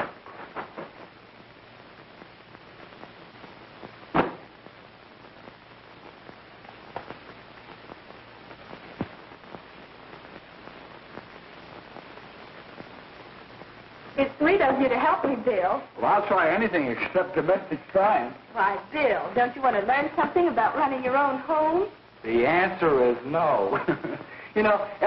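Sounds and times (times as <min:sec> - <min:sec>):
film soundtrack hiss and crackle: 0:00.0 - 0:25.0
loud pop: 0:04.1 - 0:04.6.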